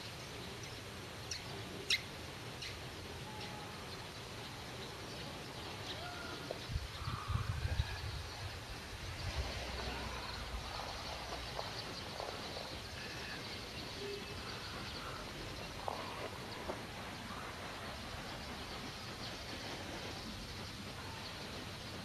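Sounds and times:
bird chirps: 9.7 - 16.8.

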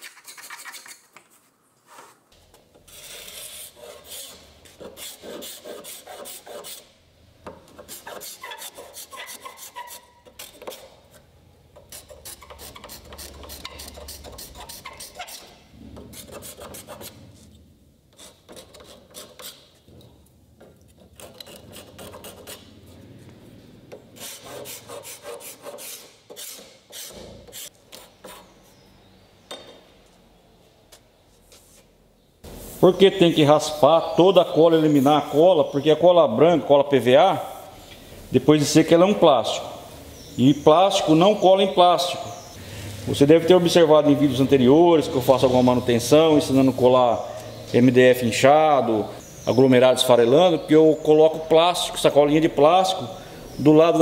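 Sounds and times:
metal scraper rasping on wood: 0.0 - 1.2, 2.8 - 6.9, 7.7 - 17.2, 18.1 - 19.8, 20.9 - 22.7, 24.2 - 28.6.

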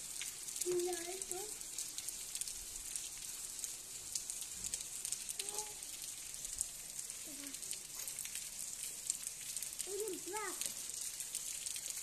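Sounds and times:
rain on asphalt: 0.0 - 12.0.

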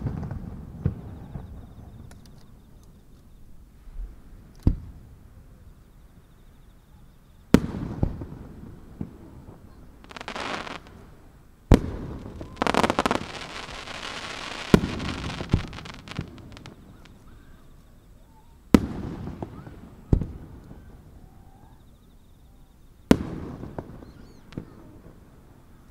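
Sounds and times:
firework booms with rumble: 7.5 - 11.0, 11.7 - 17.2, 18.7 - 21.0, 23.1 - 25.1
rapid firework crackling: 10.0 - 11.1, 11.7 - 17.3.

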